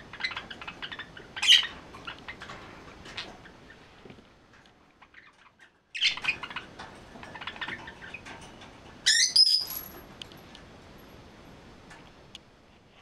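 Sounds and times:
loud sharp bird calls: 0:09.1 - 0:09.8.

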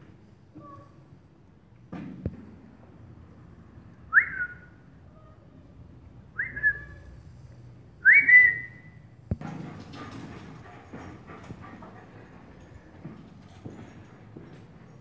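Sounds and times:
person whistling calls: 0:06.4 - 0:07.0, 0:08.0 - 0:08.9.

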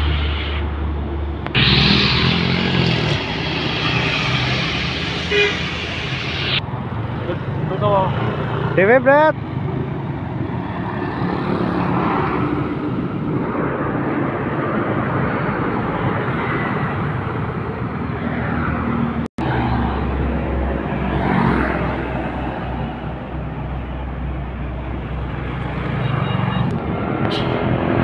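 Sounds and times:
dump truck engine passing: 0:00.0 - 0:08.7, 0:09.5 - 0:28.0
traffic noise: 0:00.0 - 0:28.0.

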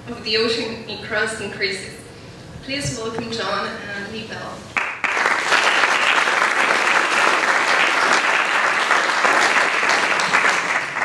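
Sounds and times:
audience applauding: 0:04.8 - 0:11.0.

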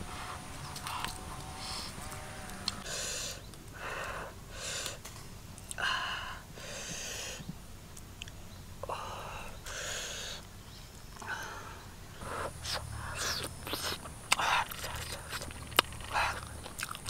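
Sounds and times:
short hissing breaths: 0:00.0 - 0:05.1, 0:05.8 - 0:07.5, 0:08.9 - 0:10.5, 0:11.2 - 0:16.6.

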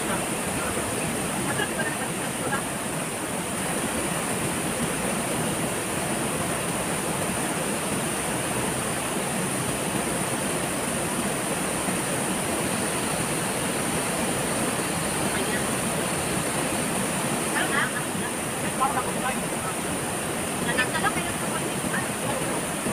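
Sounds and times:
waterfall rushing: 0:00.0 - 0:22.9.

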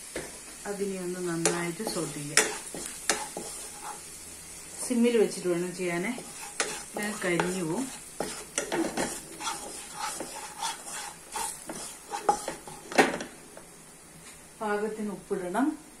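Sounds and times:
oil sizzling: 0:00.0 - 0:14.1
wooden spatula scraping a pan: 0:01.2 - 0:13.3.

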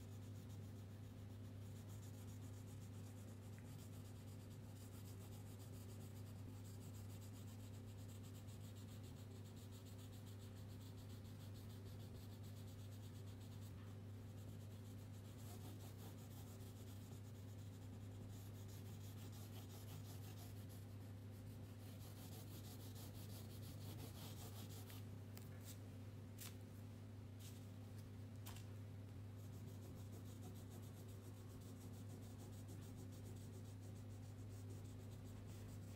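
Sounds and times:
low electrical hum: 0:00.0 - 0:35.9
crayon scratching on paper: 0:14.3 - 0:25.0, 0:29.4 - 0:35.9.

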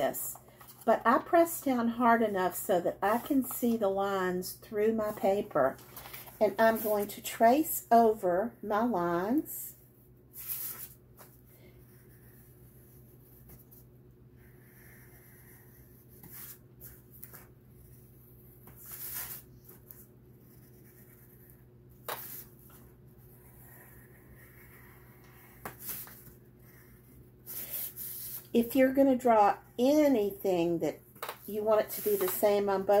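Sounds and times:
low steady hum: 0:00.0 - 0:33.0
pencil scratching on paper: 0:11.7 - 0:28.5, 0:31.5 - 0:33.0.

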